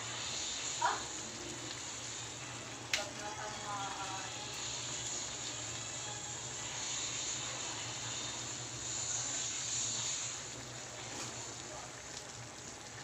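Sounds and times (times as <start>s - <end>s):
stew bubbling in pot: 0.0s - 13.0s.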